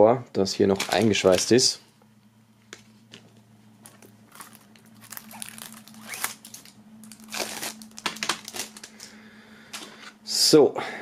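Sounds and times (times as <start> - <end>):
plastic wrap crinkling: 0.6 - 1.7, 3.8 - 9.9.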